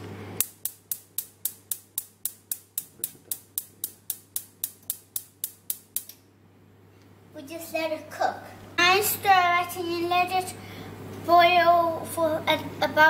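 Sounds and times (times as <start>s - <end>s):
gas igniter clicking rapidly: 0.4s - 6.2s.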